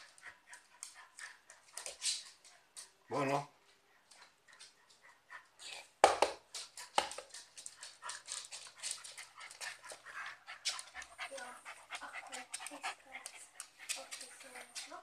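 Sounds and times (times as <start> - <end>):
dogs panting and snuffling: 0.0 - 3.0, 3.6 - 15.0
dogs scuffling: 6.4 - 15.0.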